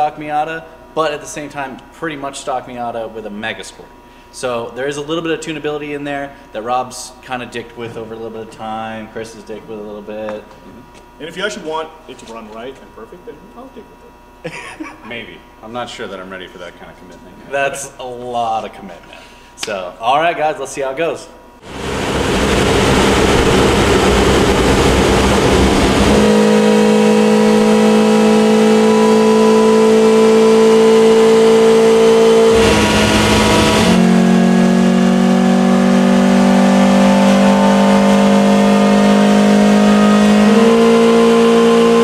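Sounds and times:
dyno rollers turning: 21.6 - 36.5
car engine running hard: 21.6 - 42.0.

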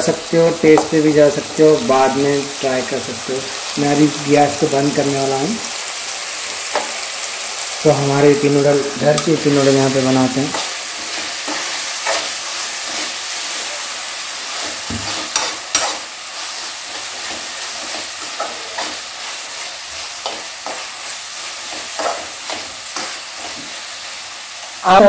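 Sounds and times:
vegetables sizzling in a pan: 0.0 - 25.0
metal spoon stirring and scraping: 9.1 - 23.8.

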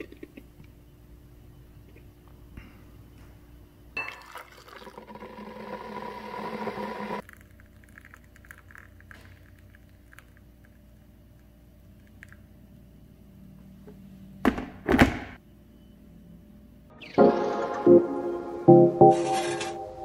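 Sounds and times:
glass clink: 4.0 - 4.5
coffee pouring into a glass: 4.0 - 11.0.

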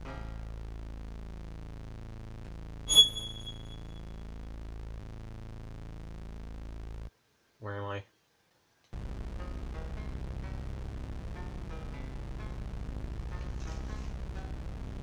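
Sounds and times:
high-pitched ringing sting: 2.9 - 4.2.

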